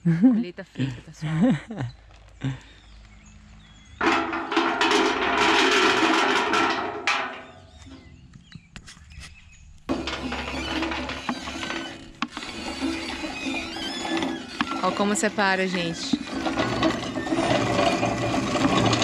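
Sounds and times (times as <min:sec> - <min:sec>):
machine churning: 0:04.0 - 0:08.0, 0:09.9 - 0:19.0.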